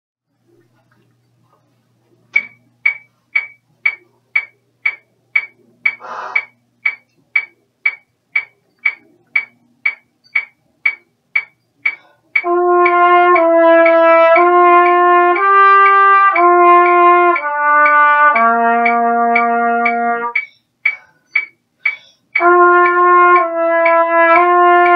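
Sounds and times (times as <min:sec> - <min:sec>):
metronome ticking: 0:02.3 - 0:24.9
trumpet playing held notes: 0:12.4 - 0:20.4, 0:22.4 - 0:24.9.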